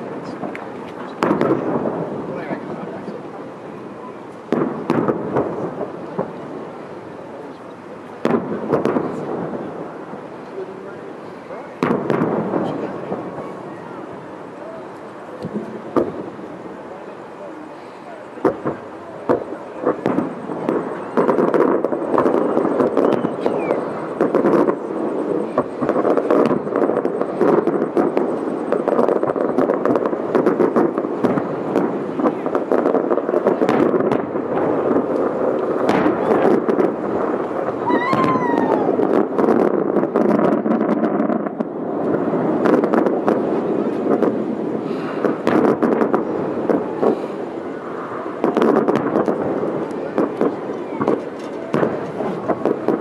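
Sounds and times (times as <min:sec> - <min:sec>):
fireworks bursting: 0:00.0 - 0:53.0.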